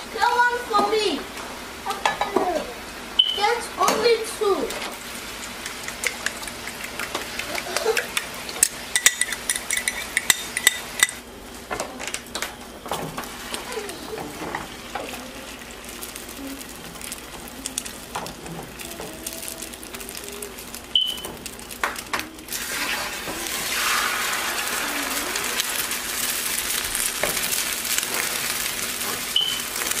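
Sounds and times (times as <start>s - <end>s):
eggs sizzling in pan: 0.0s - 30.0s
spatula scraping: 9.0s - 11.2s, 22.5s - 30.0s.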